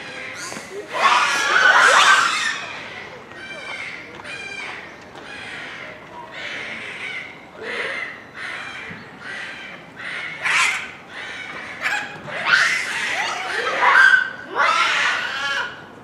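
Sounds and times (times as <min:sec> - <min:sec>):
monkeys calling: 0:00.0 - 0:15.9.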